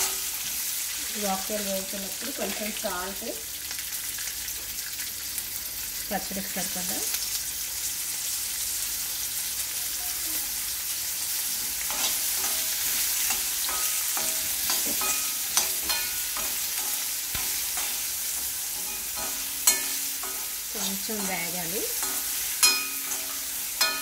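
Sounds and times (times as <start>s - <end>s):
spices sizzling in hot oil: 0.0s - 24.0s
spoon scraping a pan: 11.8s - 24.0s
sharp metal clank: 18.8s - 20.5s, 22.0s - 24.0s.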